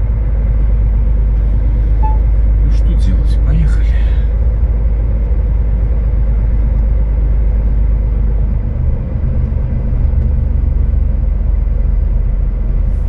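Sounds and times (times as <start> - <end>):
truck diesel engine rumbling: 0.0 - 13.0.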